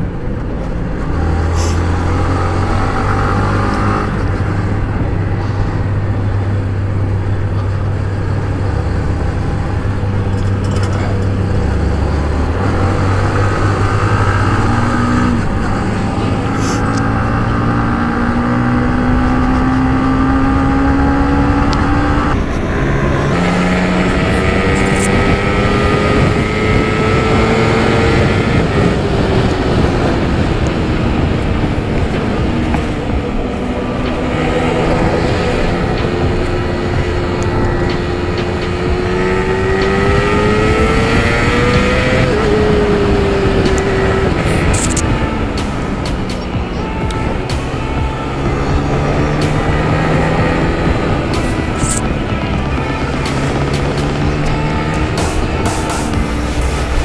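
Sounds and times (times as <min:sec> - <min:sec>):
motorcycle engine accelerating: 0:00.0 - 0:57.0
road and wind noise: 0:00.0 - 0:57.0.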